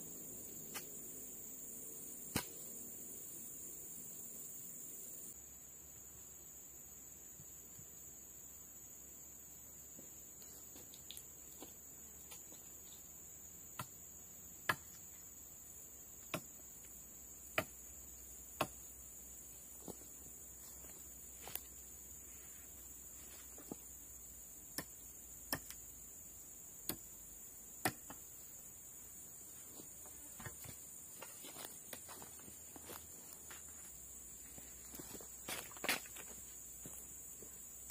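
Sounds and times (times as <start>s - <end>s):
forest insects droning: 0.0s - 37.9s.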